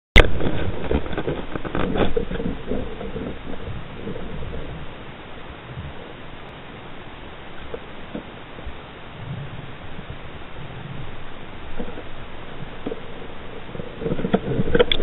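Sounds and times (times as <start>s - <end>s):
underwater clicks and knocks: 0.2s - 4.9s, 11.7s - 15.0s
underwater hiss: 2.5s - 14.8s.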